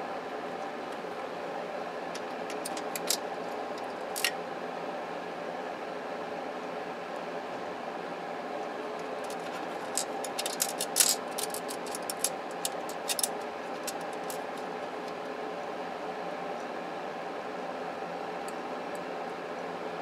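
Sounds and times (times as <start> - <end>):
steady hum: 0.0 - 20.0
screws and screwdriver rattling: 9.1 - 14.6.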